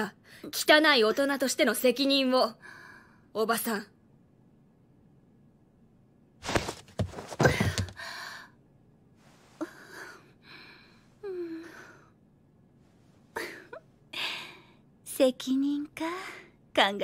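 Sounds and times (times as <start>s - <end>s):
dull knocks and rustling: 6.4s - 8.0s.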